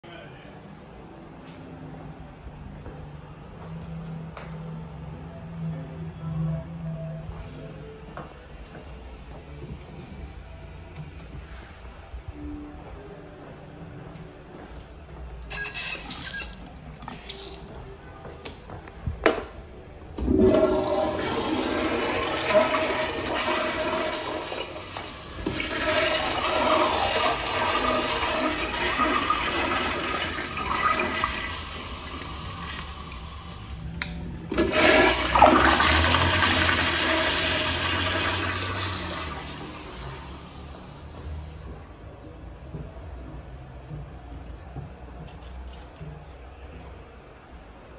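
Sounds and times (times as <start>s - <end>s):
toilet flushing water rush: 20.2s - 33.8s, 34.5s - 41.4s.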